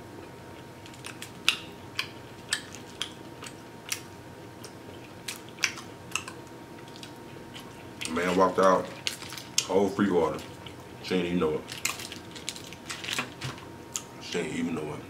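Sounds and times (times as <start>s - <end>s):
wet mouth chewing clicks: 1.4s - 6.4s.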